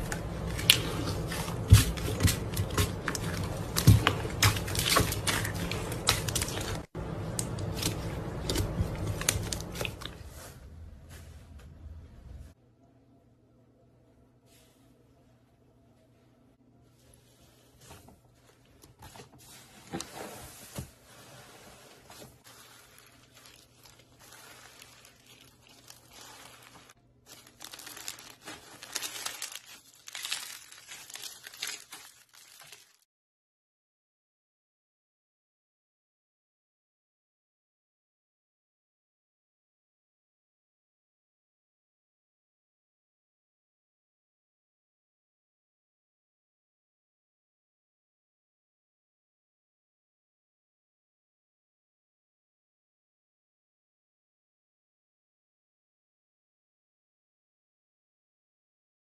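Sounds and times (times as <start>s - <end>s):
crunchy slime crackling and popping: 0.0s - 10.1s, 22.5s - 33.0s.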